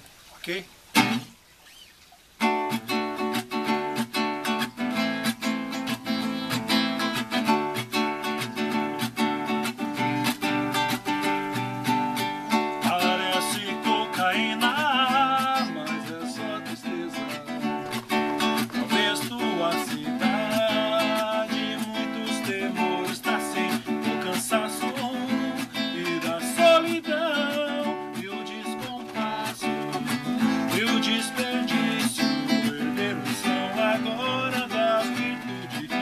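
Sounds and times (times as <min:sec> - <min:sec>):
acoustic guitar strumming: 0:00.9 - 0:01.4, 0:02.4 - 0:36.0
man singing: 0:09.6 - 0:36.0.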